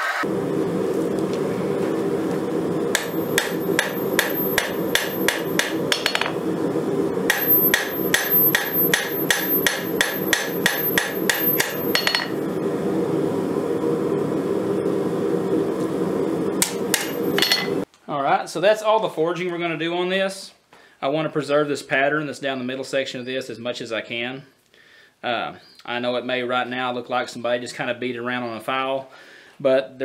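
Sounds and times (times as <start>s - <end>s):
hammer striking hot steel on anvil: 2.9s - 6.4s, 7.3s - 12.4s, 16.6s - 17.8s.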